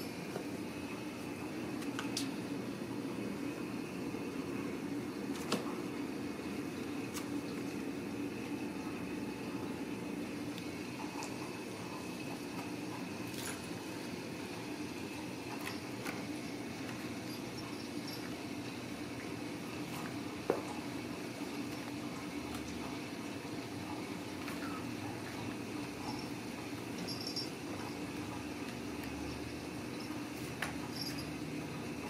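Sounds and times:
low background hum: 0:00.0 - 0:32.0.

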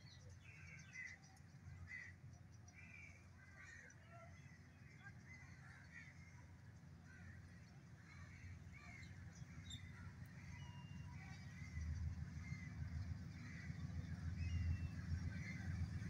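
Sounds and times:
distant locomotive rumble: 0:05.9 - 0:16.0
birds calling: 0:07.1 - 0:16.0.

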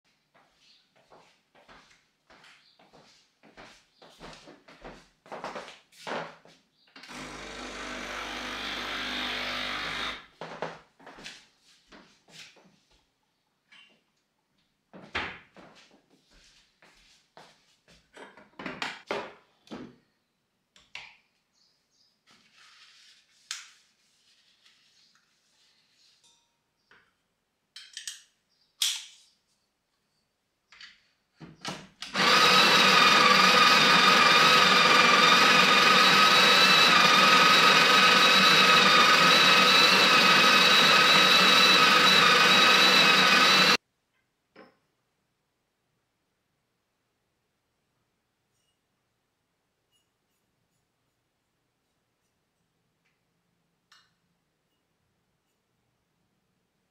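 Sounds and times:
electric motor whining: 0:07.0 - 0:10.3, 0:32.1 - 0:43.8.

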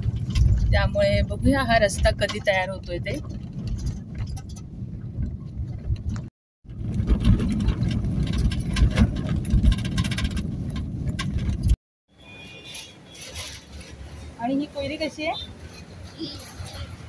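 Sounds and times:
car knocks and rattles: 0:00.0 - 0:11.8
road and engine noise: 0:00.0 - 0:17.0.

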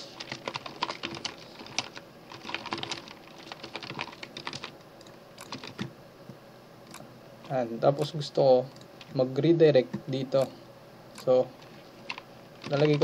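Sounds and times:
typing on computer keyboard: 0:00.2 - 0:04.7, 0:05.4 - 0:05.9, 0:12.1 - 0:13.0.

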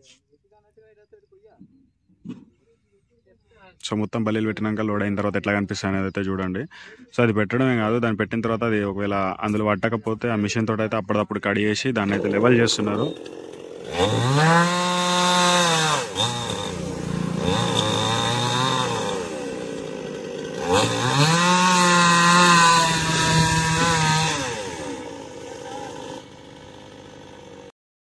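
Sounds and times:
chainsaw cutting logs: 0:12.0 - 0:27.7.

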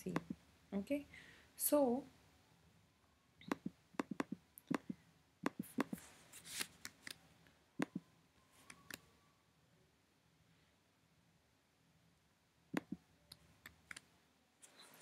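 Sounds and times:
computer mouse clicking: 0:03.4 - 0:06.0.

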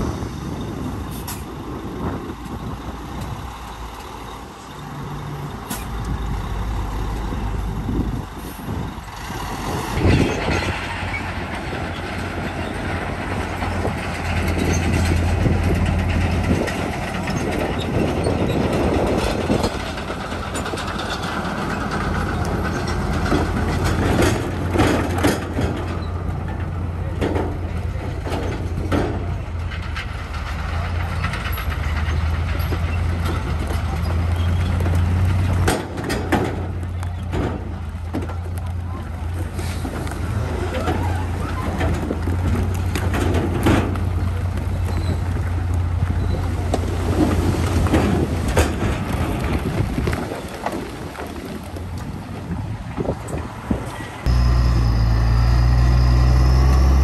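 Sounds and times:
construction machinery engine drone: 0:00.0 - 0:50.2, 0:50.8 - 0:57.0
metal clanks and knocks: 0:10.0 - 0:38.5, 0:40.8 - 0:45.4.

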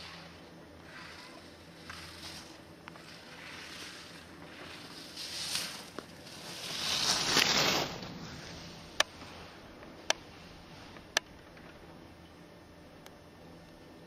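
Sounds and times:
skis scraping on hard snow: 0:00.9 - 0:09.6.

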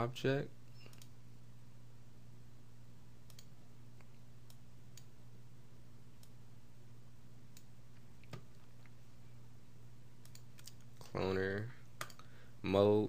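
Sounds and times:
low electrical hum: 0:00.0 - 0:13.0
computer mouse clicks: 0:00.7 - 0:01.2, 0:03.2 - 0:05.1, 0:10.2 - 0:11.1, 0:12.0 - 0:12.3.

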